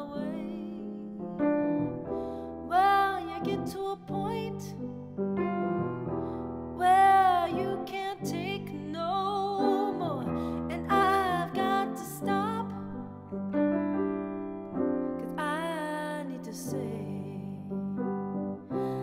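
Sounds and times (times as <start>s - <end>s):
woman singing: 0.0s - 1.6s, 2.6s - 5.1s, 6.8s - 13.2s, 15.2s - 18.1s, 18.7s - 19.0s
piano chords: 0.0s - 19.0s.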